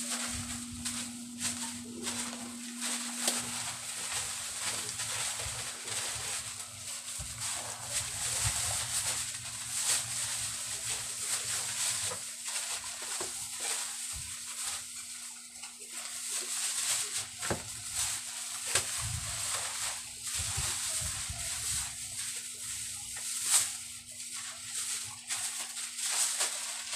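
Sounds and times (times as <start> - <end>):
low hum: 0.0 - 6.8
plastic bags rustling: 0.0 - 26.9.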